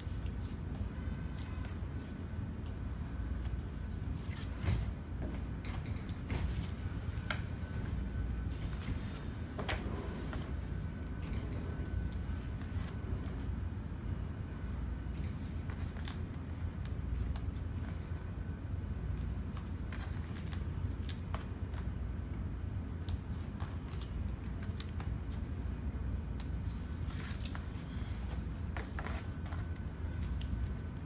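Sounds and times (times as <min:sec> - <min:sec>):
steady low hum: 0:00.0 - 0:31.0
paperboard rustling: 0:26.5 - 0:30.8.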